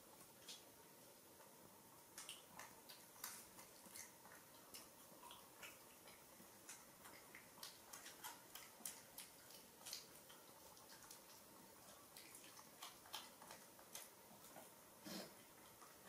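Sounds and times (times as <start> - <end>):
chewing clicks and smacks: 2.1 - 14.8.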